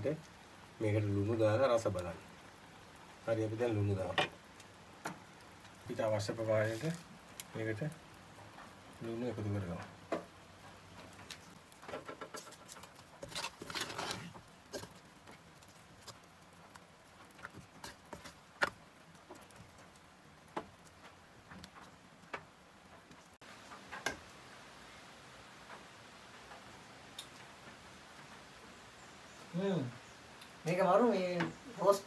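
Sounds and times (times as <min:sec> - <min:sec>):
spoon scraping thick curry: 0:12.3 - 0:15.0.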